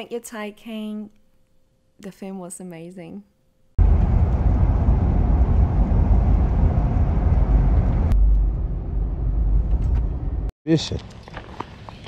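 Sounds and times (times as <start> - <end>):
vehicle cabin road noise: 3.8 - 10.5.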